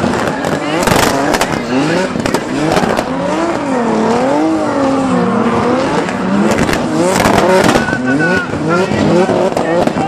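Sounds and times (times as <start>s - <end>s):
sharp cracks: 0.0s - 3.7s
car engines revving: 0.0s - 10.0s
tyre noise on tarmac: 0.0s - 10.0s.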